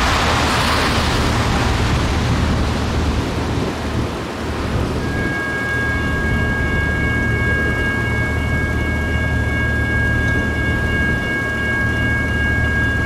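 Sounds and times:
distant freight train: 0.0s - 13.0s
wind buffeting microphone: 0.0s - 13.0s
crossing signal ringing tone: 5.0s - 13.0s.

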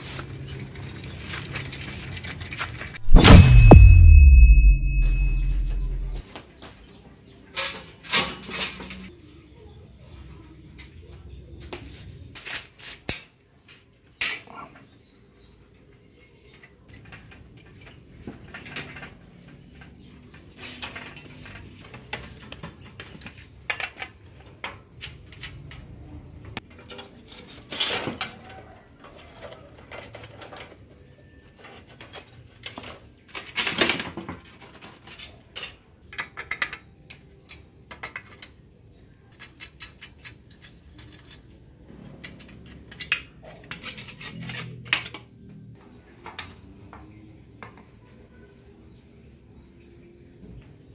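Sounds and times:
loud metal clanks: 3.0s - 6.2s.

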